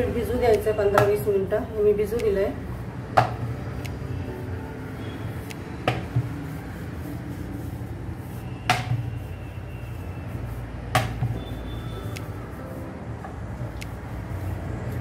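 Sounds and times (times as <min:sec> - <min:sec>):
rolling pin on dough: 0:02.1 - 0:12.6.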